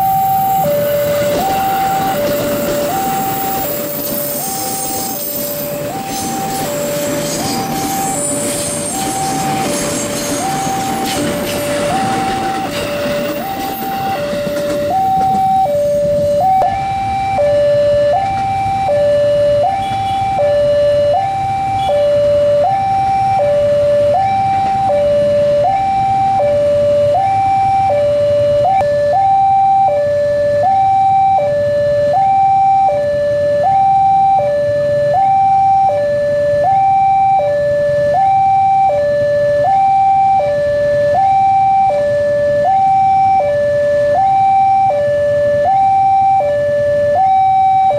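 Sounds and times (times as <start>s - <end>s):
passing train rumble: 0.0s - 17.0s
level crossing two-tone alarm: 0.0s - 47.9s.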